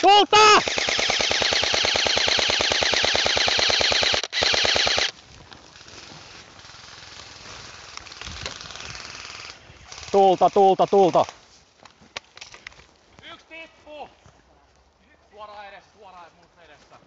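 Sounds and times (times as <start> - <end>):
airsoft gun firing full-auto: 0.6 - 5.1
moving through undergrowth: 4.6 - 17.0.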